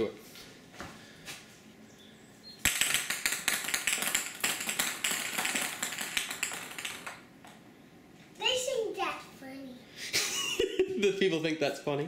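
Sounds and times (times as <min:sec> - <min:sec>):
ping pong balls bouncing on tile: 0:02.6 - 0:07.6.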